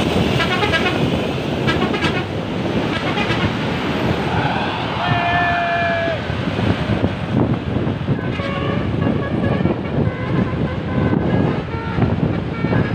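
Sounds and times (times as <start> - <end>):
traffic noise: 0.0 - 12.9
wind buffeting microphone: 0.0 - 12.9
bus melody horn: 0.3 - 1.0, 1.7 - 2.3, 2.9 - 3.6, 8.1 - 12.9.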